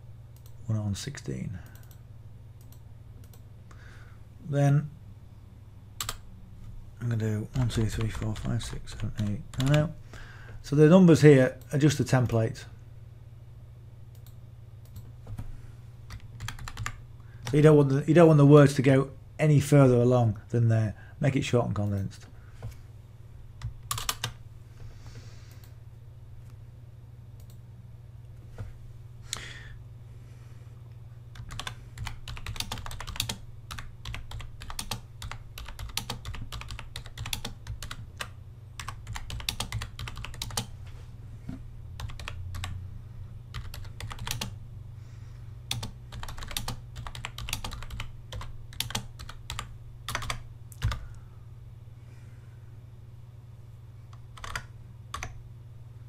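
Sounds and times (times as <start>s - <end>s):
steady low hum: 0.0s - 56.0s
keyboard typing: 1.6s - 2.0s, 6.0s - 6.2s, 7.5s - 9.9s, 16.1s - 17.6s, 23.6s - 24.4s, 31.4s - 40.7s, 42.0s - 42.8s, 43.5s - 44.6s, 45.7s - 51.1s, 54.1s - 55.4s.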